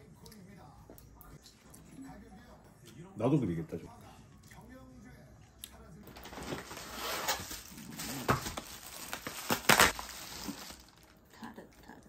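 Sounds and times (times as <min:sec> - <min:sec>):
bag rustling: 0:06.1 - 0:11.1.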